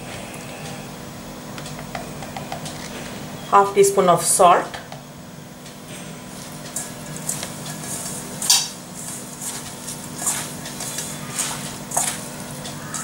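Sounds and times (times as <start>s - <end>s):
hand mixing grated potatoes: 6.3s - 13.0s.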